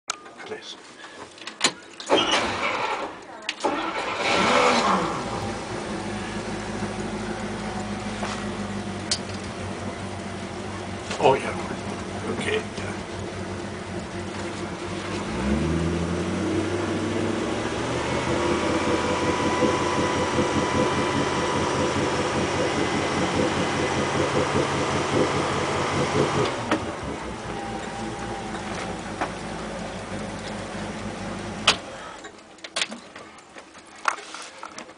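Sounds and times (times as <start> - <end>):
engine revving on start: 2.1 - 6.6, 15.1 - 28.8
boat engine idling: 5.1 - 16.2, 16.9 - 32.7.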